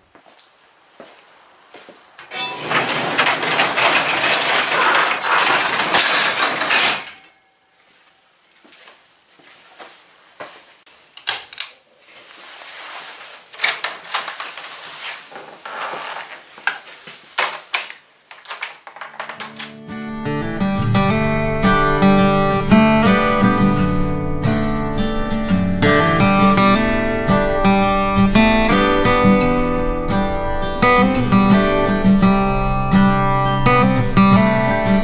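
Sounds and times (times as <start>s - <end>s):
garage door rolling shut: 2.2s - 7.4s.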